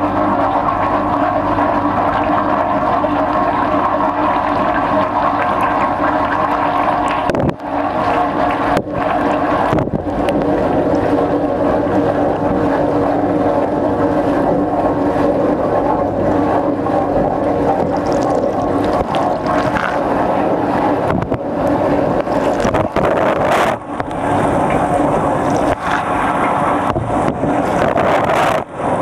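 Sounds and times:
wash pump humming: 0.0s - 29.0s.

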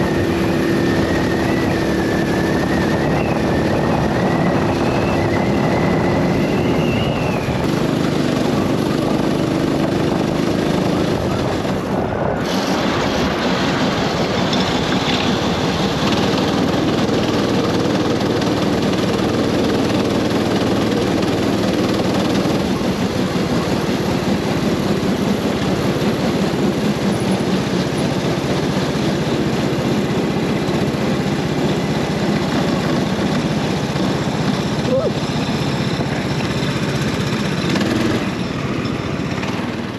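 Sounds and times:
go-kart engine running: 0.0s - 39.9s
wind noise on microphone: 0.0s - 39.9s.

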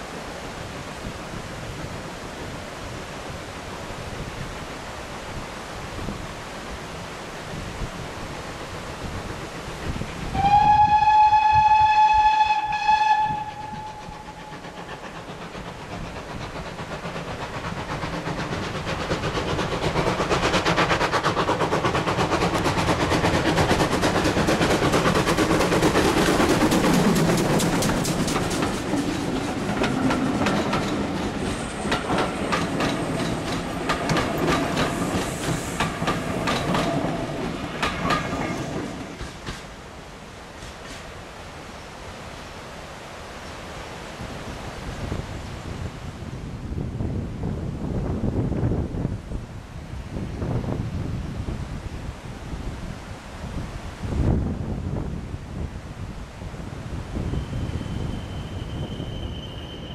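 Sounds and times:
steam locomotive chuffing: 9.4s - 39.9s
steam locomotive whistle: 10.3s - 14.6s, 57.2s - 59.9s
wheels clattering over rail joints: 13.8s - 39.8s.

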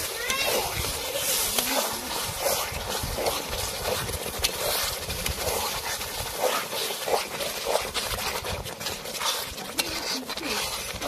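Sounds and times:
curry bubbling and sizzling: 0.0s - 11.0s
metal ladle scraping pan: 0.0s - 11.0s.

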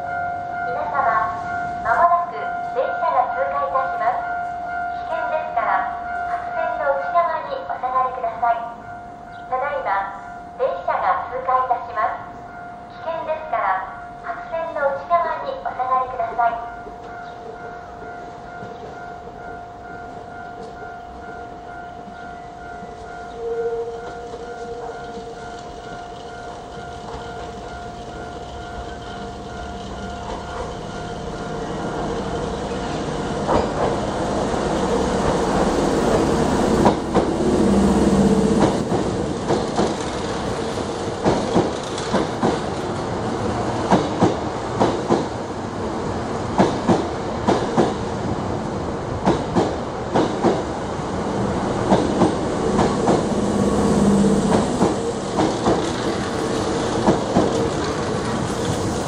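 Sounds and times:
electric train passing: 0.0s - 59.0s
train wheels clacking over rail joints: 38.6s - 43.0s, 43.8s - 45.4s, 46.6s - 48.0s, 49.2s - 50.7s, 54.5s - 59.0s.

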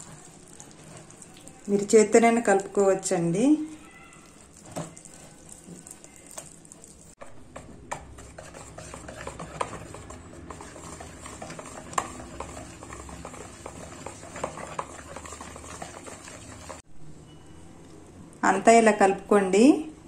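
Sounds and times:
whisk beating batter in bowl: 0.0s - 3.1s, 7.2s - 16.8s.

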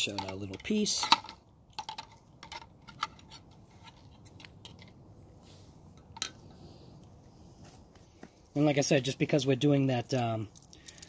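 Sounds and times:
small parts clicking and tapping: 0.0s - 5.0s, 10.1s - 11.0s.

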